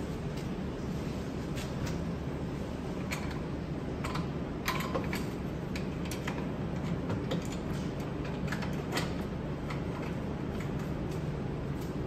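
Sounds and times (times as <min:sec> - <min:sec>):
steady low hum: 0:00.0 - 0:12.0
metal parts clicking and tapping: 0:04.0 - 0:11.2.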